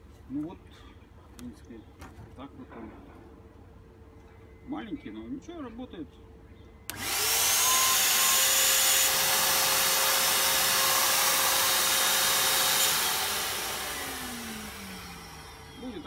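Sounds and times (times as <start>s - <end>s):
blower motor whining: 6.9s - 16.0s.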